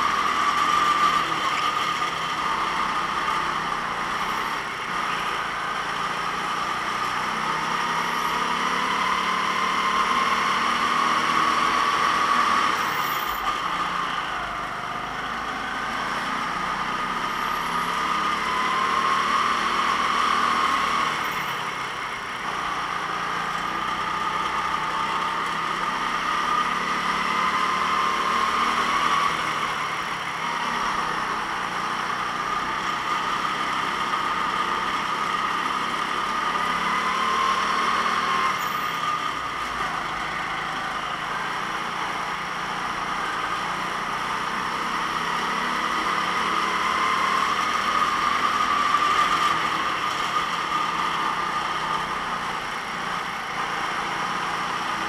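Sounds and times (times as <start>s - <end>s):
go-kart engine running: 0.0s - 55.0s.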